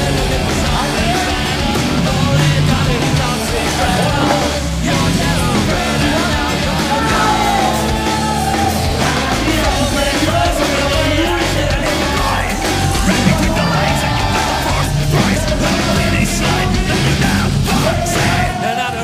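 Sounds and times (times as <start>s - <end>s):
rock music with vocals: 0.0s - 19.0s.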